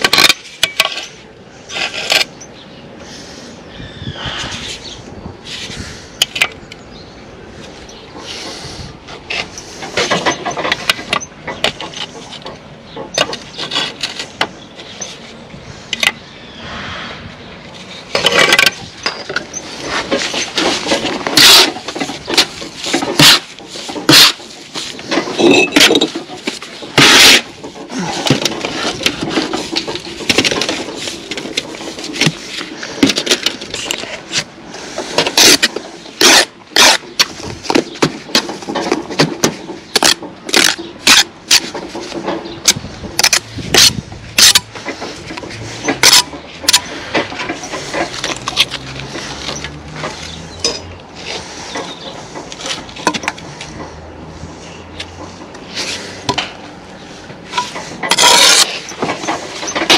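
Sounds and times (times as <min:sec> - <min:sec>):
trowel scraping mortar board: 0:01.7 - 0:02.3, 0:19.6 - 0:39.0, 0:57.5 - 0:59.9.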